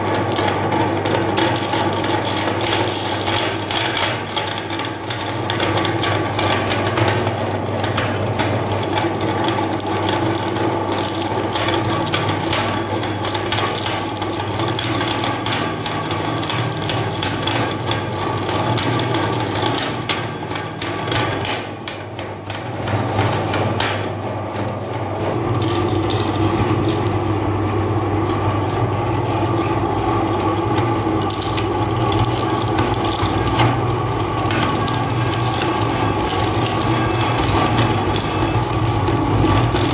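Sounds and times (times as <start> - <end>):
meat grinder motor hum: 0.0 - 39.9
hard candies crunching: 25.2 - 39.9.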